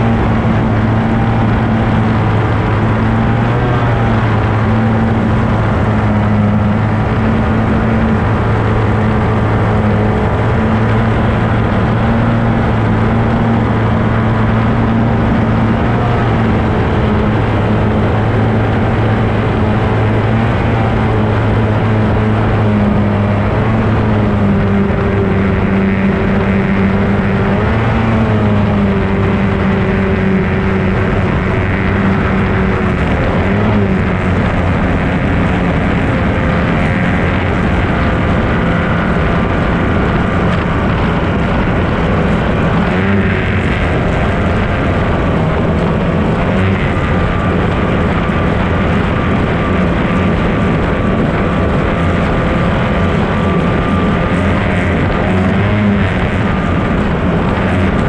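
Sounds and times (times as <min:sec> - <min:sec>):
racing outboard engine: 0:00.0 - 0:58.0
rushing wind and water: 0:00.0 - 0:58.0.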